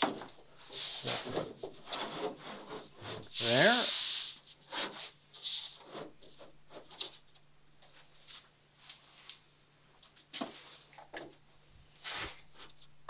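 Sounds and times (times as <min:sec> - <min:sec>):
plywood plank rubbing and tapping: 0:00.0 - 0:03.3.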